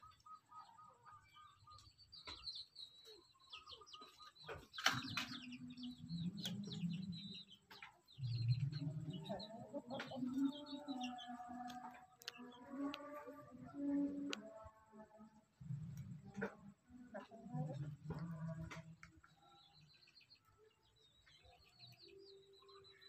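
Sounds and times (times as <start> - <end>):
chicks peeping: 0.0 - 14.6
hen clucking low calls: 4.2 - 14.7.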